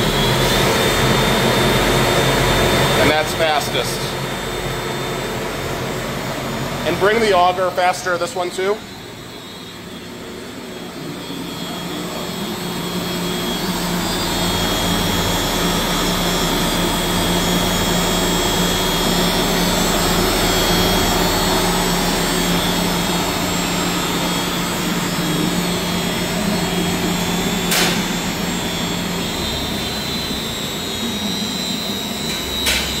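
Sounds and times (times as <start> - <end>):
meat grinder motor humming and whining: 0.0 - 6.8, 8.8 - 33.0.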